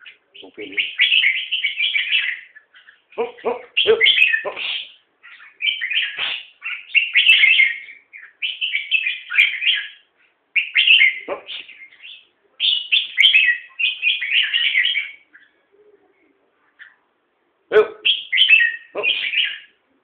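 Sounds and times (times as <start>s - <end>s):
bird singing chattering phrases: 0.0s - 19.8s.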